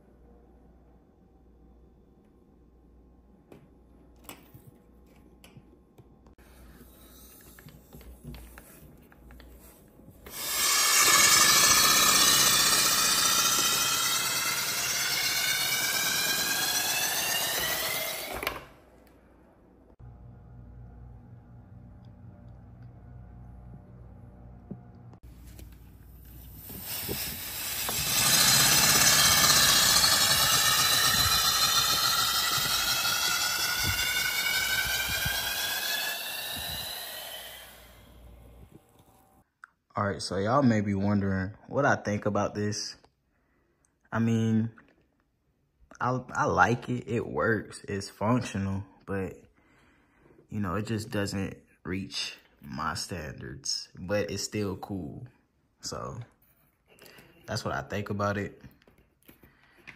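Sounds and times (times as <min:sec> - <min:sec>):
compressed air hissing through engine: 0:10.3 - 0:18.2, 0:26.4 - 0:38.3.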